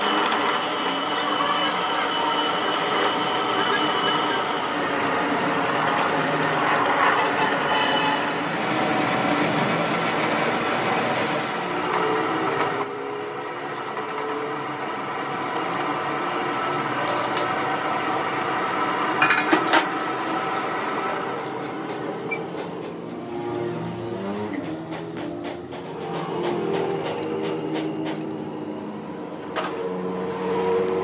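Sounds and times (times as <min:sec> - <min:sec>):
lathe drilling steel: 0:00.0 - 0:21.4.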